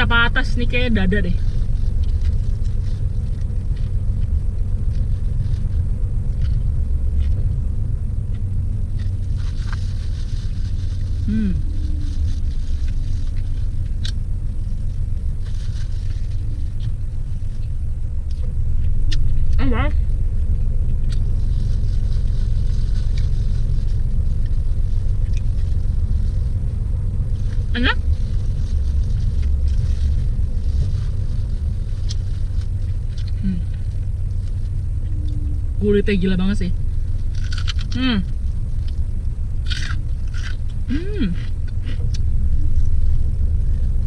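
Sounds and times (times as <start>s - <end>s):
car engine idling: 0.0s - 44.0s
crunchy food being chewed: 8.2s - 19.6s, 20.8s - 26.6s, 27.3s - 35.4s, 37.1s - 44.0s.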